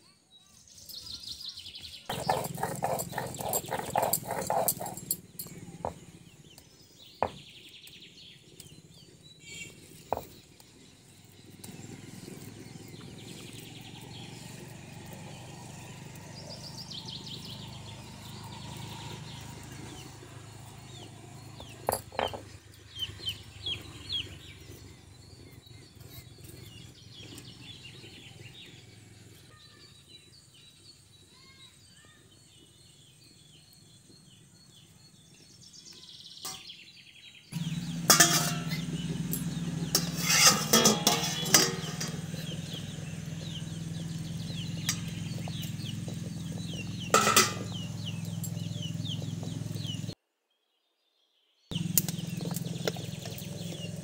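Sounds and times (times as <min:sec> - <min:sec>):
stone grinding gritty scraping: 0:02.1 - 0:06.0, 0:21.6 - 0:22.5, 0:39.5 - 0:42.6.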